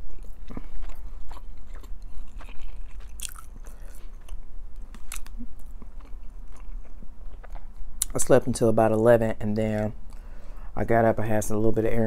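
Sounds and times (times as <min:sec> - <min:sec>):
person chewing food: 0:00.0 - 0:08.2.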